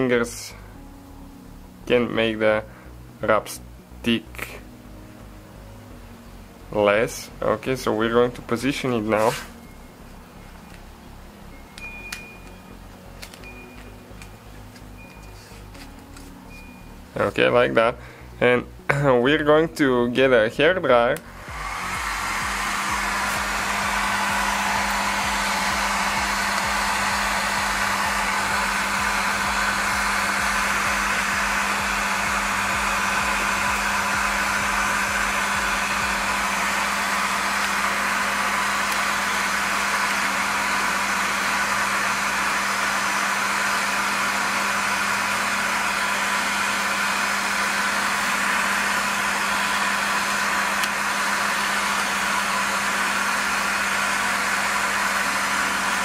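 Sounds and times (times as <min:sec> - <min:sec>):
hair dryer running: 0:08.0 - 0:10.8, 0:11.8 - 0:16.7, 0:21.0 - 0:56.0.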